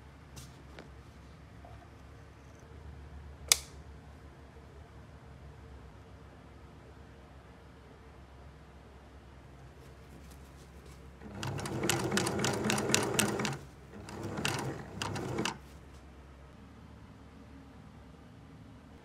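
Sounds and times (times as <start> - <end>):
sewing machine stitching: 11.2 - 15.6.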